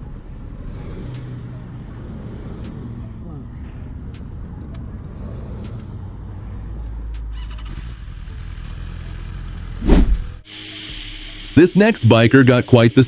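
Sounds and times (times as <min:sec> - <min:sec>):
wind rushing over microphone: 0:09.8 - 0:10.4.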